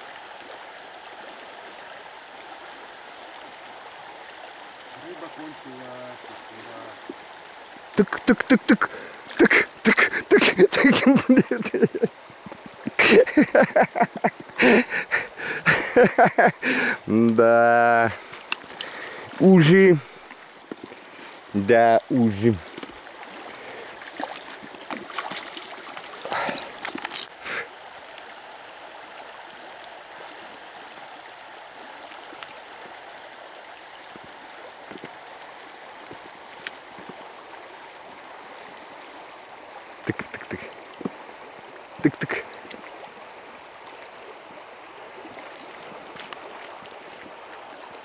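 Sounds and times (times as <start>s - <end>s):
river water running over stones: 0.0s - 48.0s
fish splashing: 22.7s - 27.3s.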